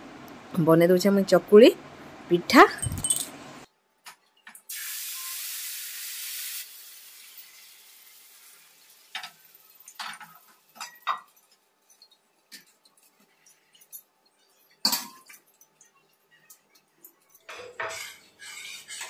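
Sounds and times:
metal utensils clinking: 2.7 - 3.4, 9.1 - 19.0
batter sizzling on hot pan: 4.7 - 13.2.

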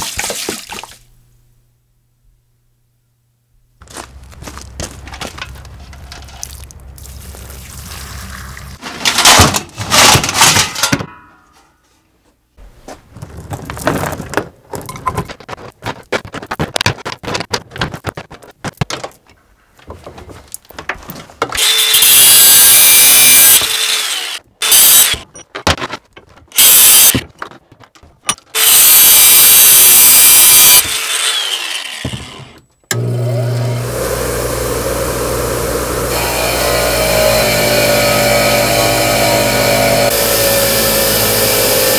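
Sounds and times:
bench grinder humming: 21.6 - 25.2, 28.6 - 41.9
power tool grinding metal: 21.6 - 25.2, 28.6 - 41.9.

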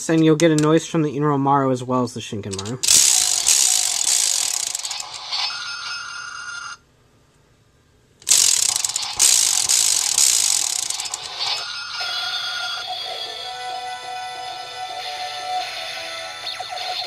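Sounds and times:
toy disk ratcheting clatter: 2.5 - 6.1, 8.2 - 12.8
toy electronic sound effects: 2.6 - 6.8, 8.2 - 17.0.

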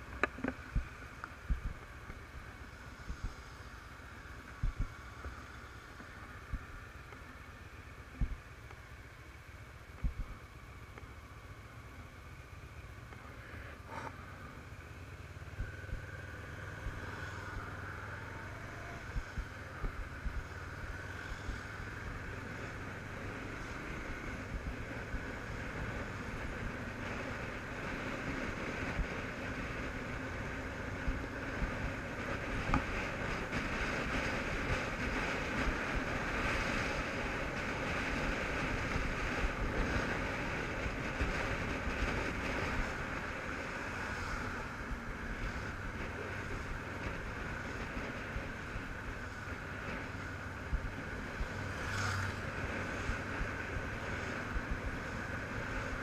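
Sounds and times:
motorcycle engine running: 0.0 - 56.0
wind buffeting microphone: 0.7 - 1.8, 4.6 - 4.9, 15.5 - 23.1.

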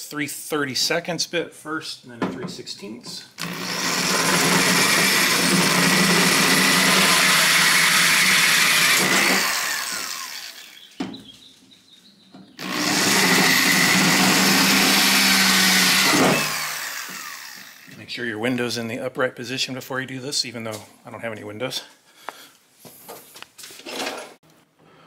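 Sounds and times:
power drill running: 3.4 - 10.9, 12.6 - 18.0.

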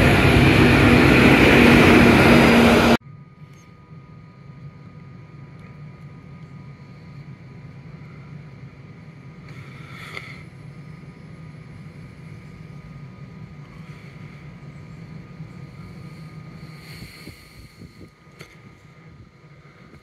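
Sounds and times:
train rumbling: 0.0 - 3.0, 3.9 - 20.0
faint whining tones: 3.0 - 20.0
train hiss: 6.7 - 20.0.

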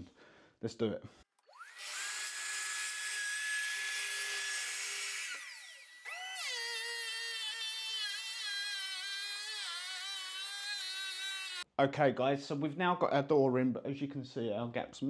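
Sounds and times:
track saw cutting: 1.4 - 11.7
power planer whining: 1.5 - 11.6.

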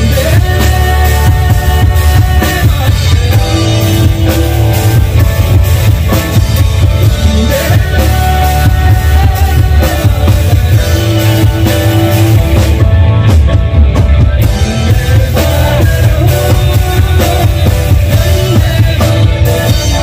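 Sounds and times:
live band through speakers: 0.0 - 20.0.

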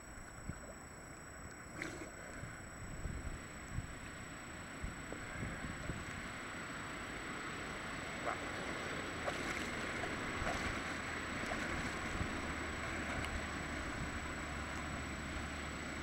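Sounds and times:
water splashing from swimming: 8.2 - 15.0
small splashes close by: 9.2 - 13.5.

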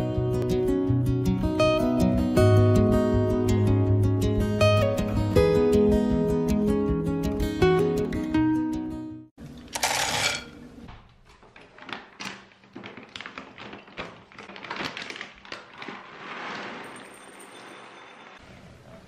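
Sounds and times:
acoustic guitar music: 0.0 - 9.3
plastic bag crinkling: 11.2 - 17.6.

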